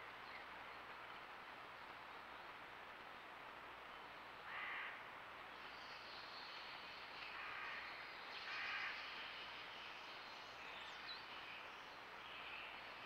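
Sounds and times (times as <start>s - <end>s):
crow cawing: 4.5s - 5.0s, 7.4s - 7.8s, 8.5s - 9.0s.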